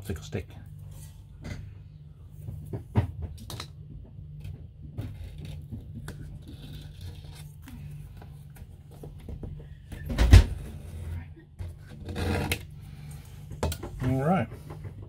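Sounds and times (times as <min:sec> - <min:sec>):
steady low hum: 0:00.0 - 0:15.0
wooden stick scraping tape: 0:05.2 - 0:07.6.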